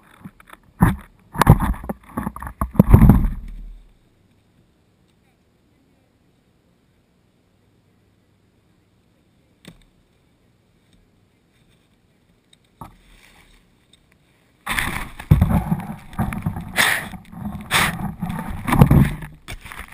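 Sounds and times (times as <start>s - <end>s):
rubbing and bumping on camera: 0.0s - 3.9s, 14.7s - 19.9s.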